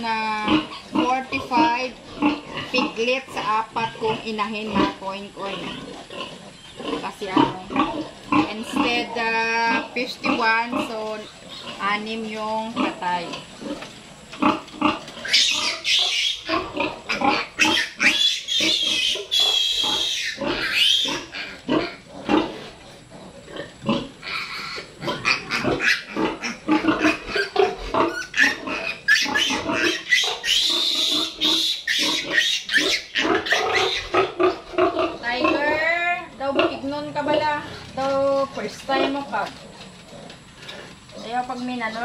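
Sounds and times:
piglets squealing: 14.4s - 22.7s, 23.8s - 37.6s.

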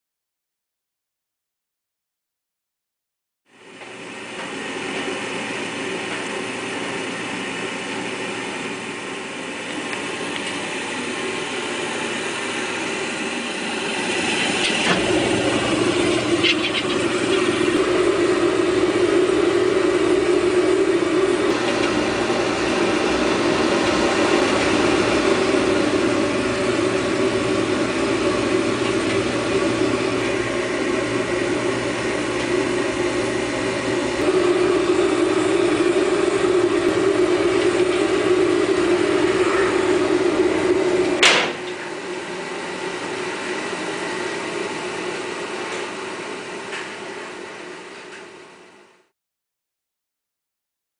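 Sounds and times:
oil burner roaring: 3.5s - 49.1s.

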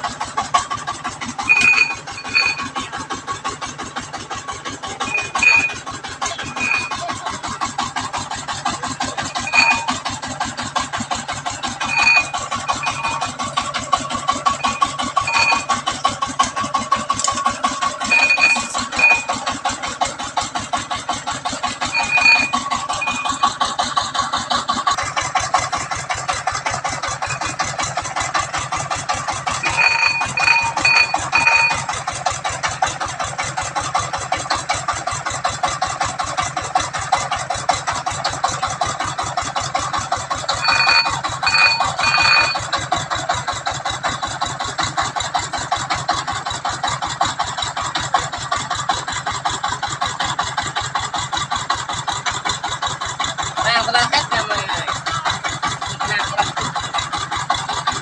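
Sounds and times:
diesel engine chugging: 0.0s - 58.0s.

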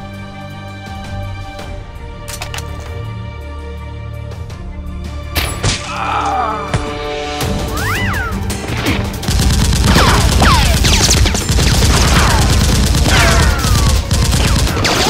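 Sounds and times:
background music: 0.0s - 15.0s
automatic gunfire: 9.3s - 15.0s.

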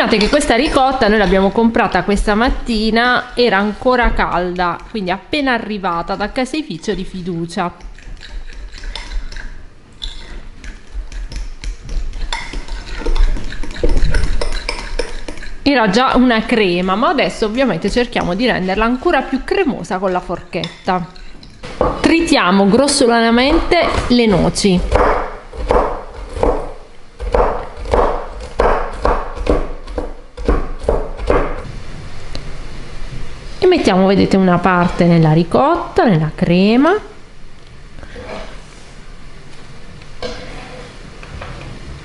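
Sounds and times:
fork scraping glass bowl: 0.0s - 1.6s, 5.9s - 15.7s, 20.2s - 21.6s, 40.2s - 41.0s
knife chopping on wooden board: 24.8s - 31.6s.

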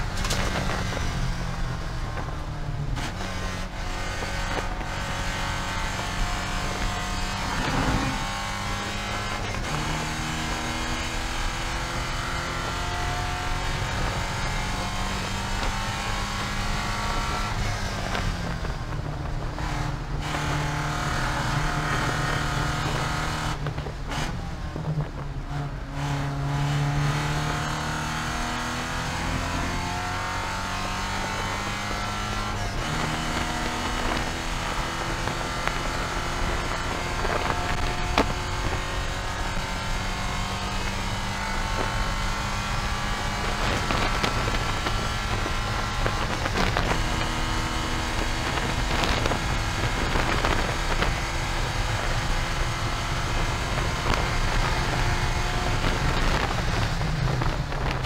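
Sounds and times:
race car engine at high revs: 0.0s - 58.0s
road and wind noise: 0.0s - 58.0s.

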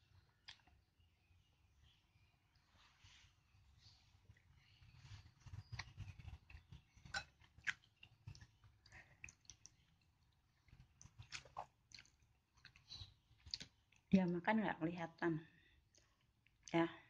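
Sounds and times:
chewing: 4.3s - 14.1s.

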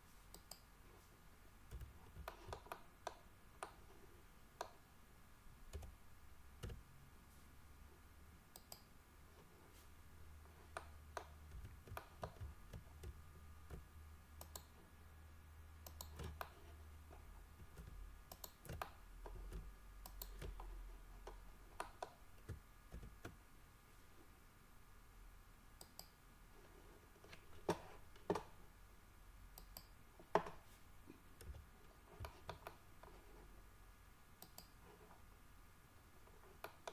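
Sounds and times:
faint low hum: 0.0s - 36.9s
mouse and keyboard clicks: 1.7s - 3.8s, 10.7s - 14.8s, 15.8s - 16.8s, 17.7s - 23.4s, 32.2s - 33.2s, 34.4s - 34.8s.

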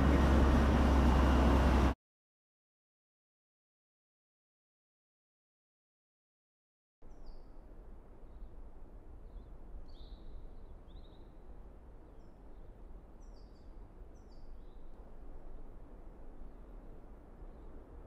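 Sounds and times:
low wind rumble: 0.0s - 2.0s, 7.1s - 18.0s.

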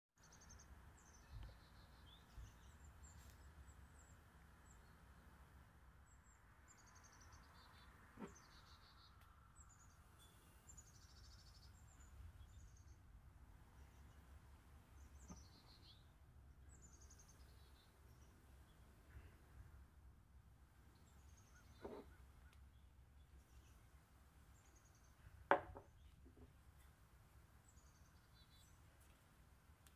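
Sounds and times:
small birds chirping: 0.2s - 29.9s
soft knocks: 25.5s - 26.5s.

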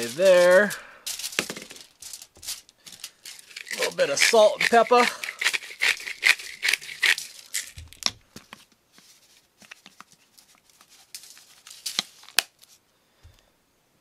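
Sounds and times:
spice grinders rasping clicks: 3.0s - 8.1s.

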